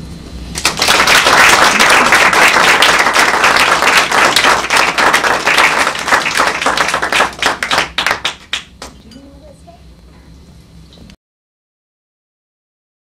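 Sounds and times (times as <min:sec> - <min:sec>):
audience applauding: 0:00.6 - 0:09.0.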